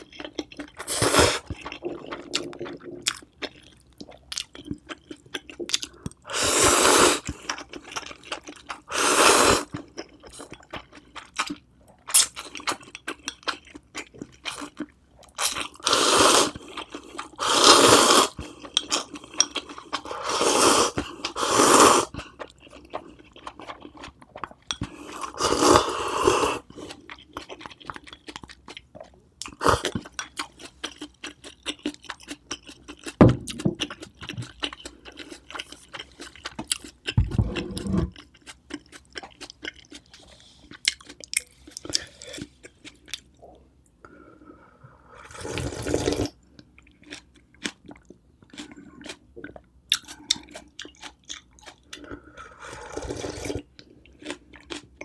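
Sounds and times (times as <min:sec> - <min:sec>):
wet chewing: 0:00.0 - 0:06.2, 0:22.1 - 0:25.2, 0:26.6 - 0:43.4, 0:46.7 - 0:55.0
noodle slurping: 0:00.8 - 0:03.0, 0:06.3 - 0:07.3, 0:52.6 - 0:53.7.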